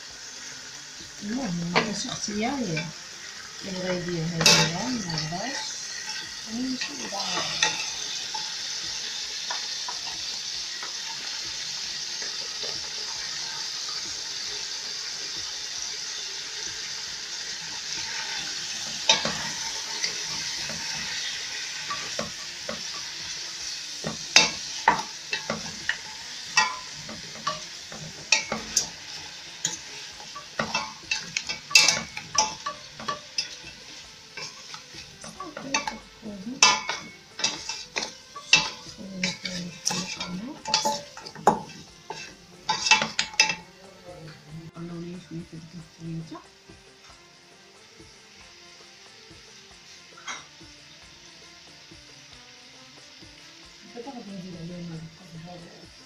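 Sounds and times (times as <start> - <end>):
food sizzling in oil: 0.0 - 56.0
utensil scraping and knocking pot: 4.3 - 10.2, 18.0 - 43.8.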